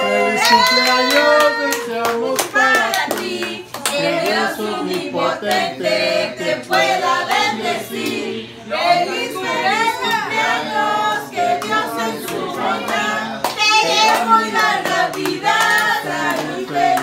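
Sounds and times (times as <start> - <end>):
small group singing a celebration song: 0.0 - 17.0
hand claps: 11.6 - 17.0.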